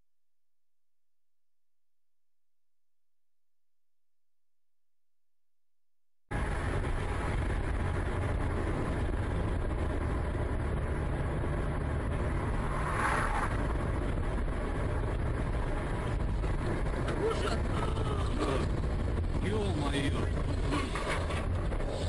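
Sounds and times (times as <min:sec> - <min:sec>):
car engine and road rumble: 0:06.3 - 0:22.0.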